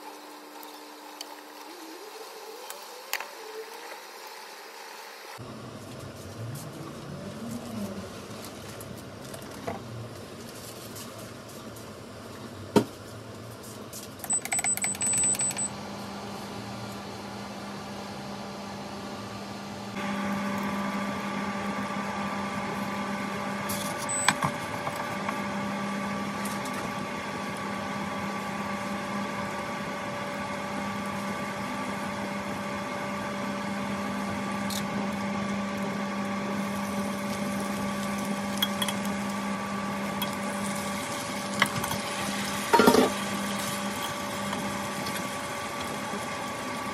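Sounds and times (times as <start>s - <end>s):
induction hob electrical hum: 0.0s - 46.9s
electronic beeping: 14.3s - 15.7s, 24.0s - 24.4s.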